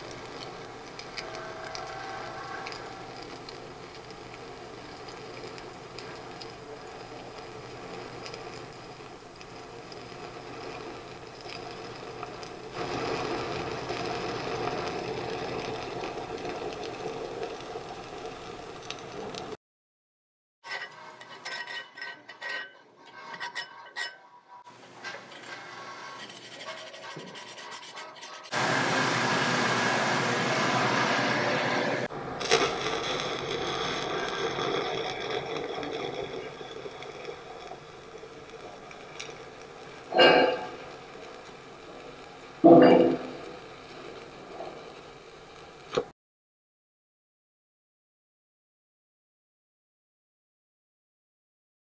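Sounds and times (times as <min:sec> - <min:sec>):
stick welding arc: 0:00.0 - 0:19.6, 0:32.1 - 0:46.1
wire brush scraping metal: 0:20.6 - 0:28.6.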